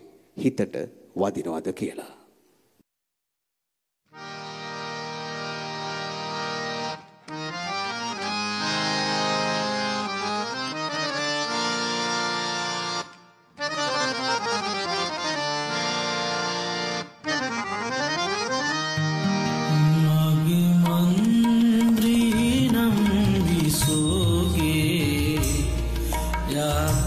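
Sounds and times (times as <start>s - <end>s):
instrumental music with sustained chords: 4.1s - 20.8s.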